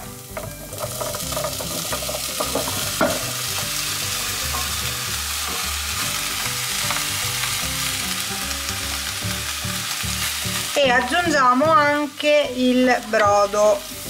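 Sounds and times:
food sizzling in oil: 0.0 - 14.0
spatula knocking in pan: 0.3 - 3.4.

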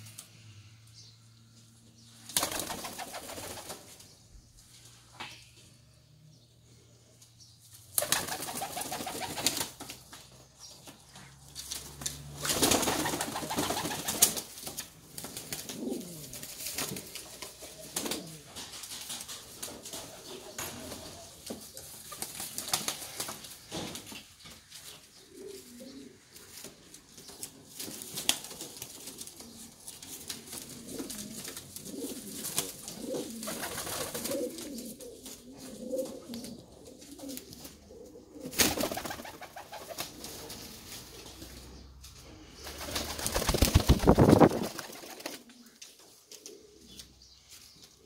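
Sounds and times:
fluttering rush of wings: 8.0 - 10.0, 11.8 - 14.6, 42.5 - 45.5
pigeons cooing: 15.3 - 18.8, 25.1 - 26.9, 29.0 - 47.2.

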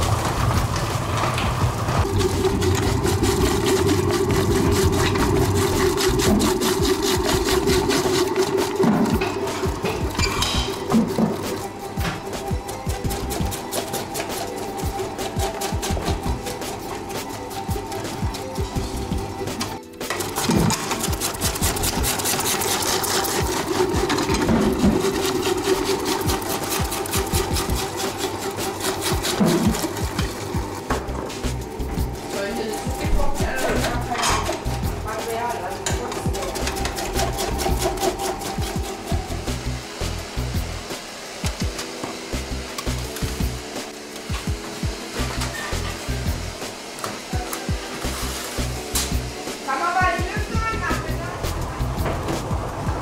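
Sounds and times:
vegetable cutting machine motor hum: 0.0 - 53.0
cutting blades clattering: 33.6 - 39.3.

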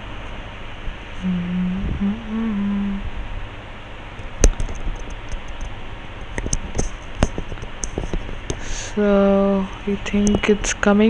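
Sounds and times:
person humming: 1.2 - 3.1.

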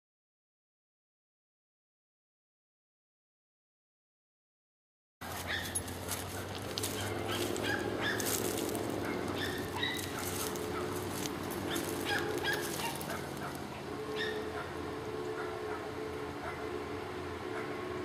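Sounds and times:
steam locomotive whistle: 13.6 - 18.0.

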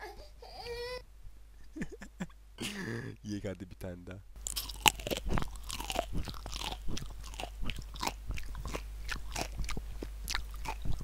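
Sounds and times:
person chewing with sharp crunches: 4.4 - 11.0.

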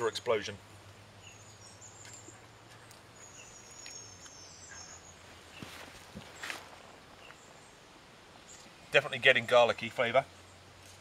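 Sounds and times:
faint high birdsong: 0.0 - 11.0.

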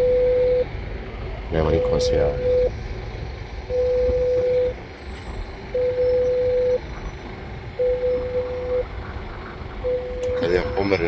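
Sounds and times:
intercom ringing beep: 0.0 - 0.7, 1.6 - 2.7, 3.7 - 4.8, 5.7 - 6.9, 7.8 - 8.9, 9.8 - 11.0.

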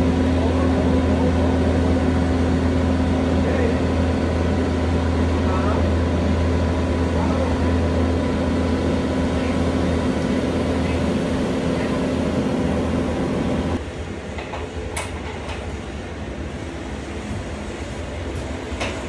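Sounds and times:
engine running with low hum: 0.0 - 13.8.

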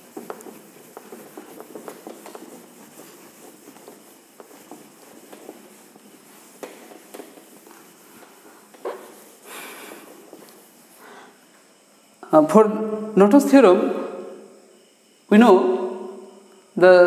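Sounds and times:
eraser rubbing whiteboard: 0.0 - 11.3.

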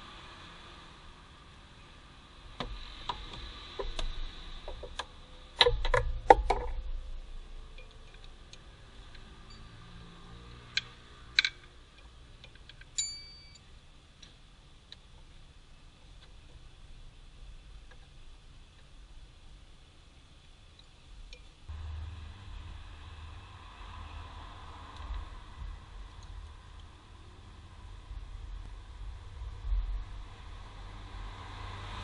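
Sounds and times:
metal tool ringing: 13.0 - 13.6.

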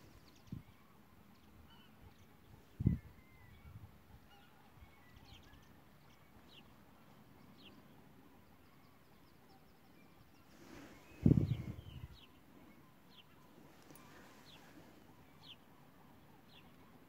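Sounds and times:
faint outdoor air: 0.0 - 17.0
low rumble on microphone: 10.9 - 12.2.

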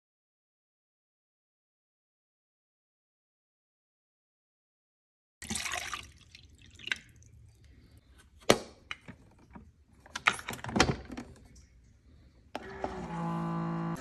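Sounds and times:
water splashing into reservoir: 5.4 - 7.4.

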